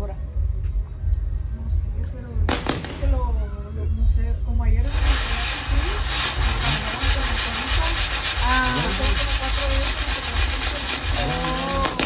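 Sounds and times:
low rumble: 0.0s - 12.0s
fireworks fizzing crackle: 2.5s - 3.4s, 4.8s - 12.0s.

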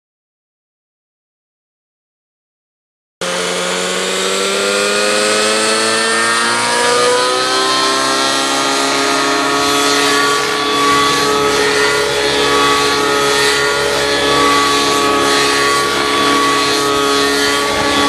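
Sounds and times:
model helicopter engine and rotor: 3.2s - 18.0s.

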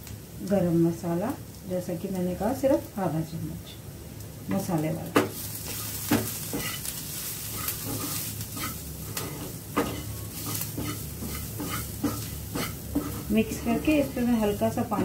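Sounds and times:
spices sizzling in oil: 0.0s - 15.0s
spatula scraping frying pan: 5.2s - 15.0s.

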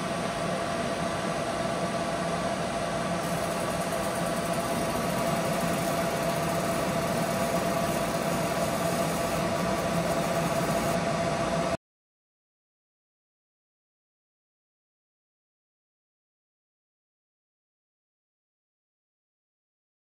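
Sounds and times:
laser engraver fan hum: 0.0s - 11.8s
laser burning wood hiss: 3.2s - 11.0s.

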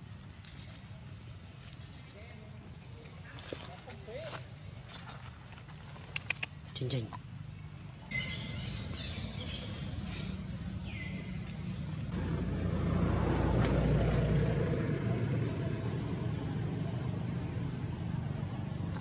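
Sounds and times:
motor vehicle passing by: 8.2s - 19.0s.

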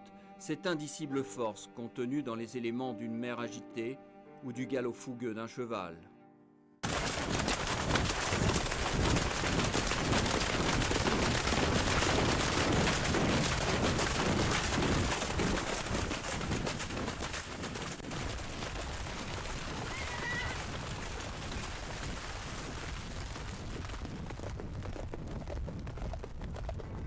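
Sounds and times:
hooves splashing in water: 6.8s - 24.0s
horse whinnying: 19.8s - 20.7s.

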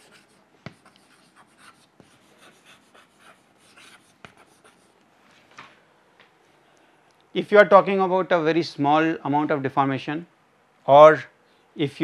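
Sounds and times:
chalk tapping on board: 0.0s - 4.8s
chalk scratching on chalkboard: 0.0s - 4.9s.

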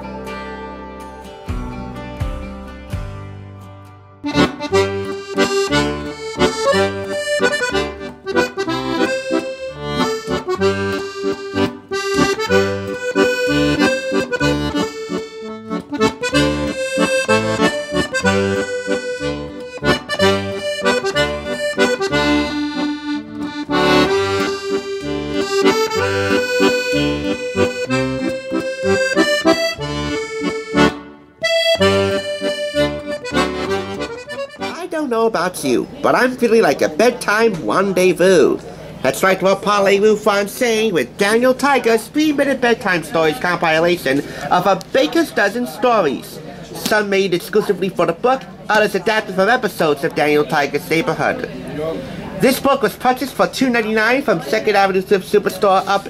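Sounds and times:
accordion music over bass beat: 0.0s - 35.2s.

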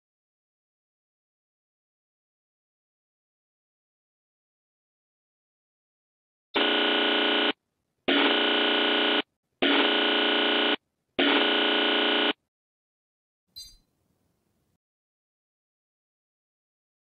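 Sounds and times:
electronic buzzer alert tone: 6.6s - 12.4s.

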